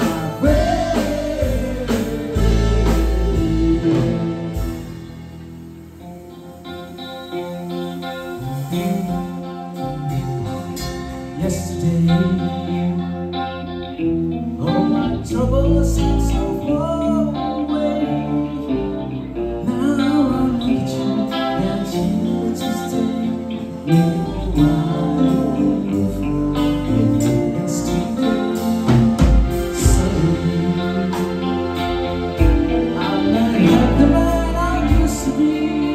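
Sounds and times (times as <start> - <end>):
person singing: 0.0 - 5.0, 6.5 - 35.9
drums hitting: 0.0 - 5.4
live band playing: 0.0 - 35.9.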